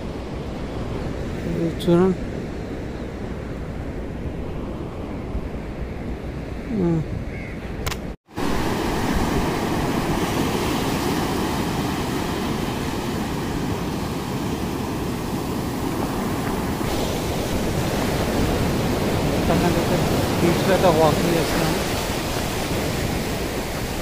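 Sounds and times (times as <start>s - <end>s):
wind rumbling on microphone: 0.0s - 24.0s
surf breaking on beach: 8.3s - 24.0s.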